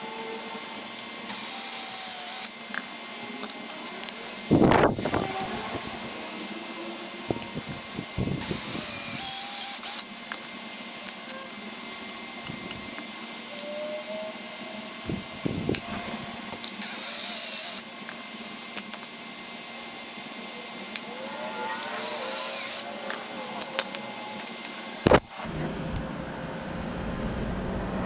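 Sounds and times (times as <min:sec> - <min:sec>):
cordless drill drilling into wood: 0:01.3 - 0:02.5, 0:08.3 - 0:10.1, 0:16.8 - 0:17.9, 0:22.0 - 0:22.8
steady low rumble: 0:25.4 - 0:28.0.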